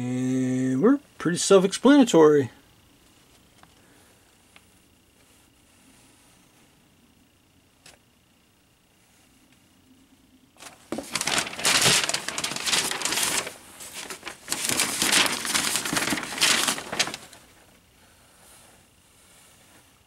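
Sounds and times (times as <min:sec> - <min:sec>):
paper rustling and crinkling: 0:10.6 - 0:17.7.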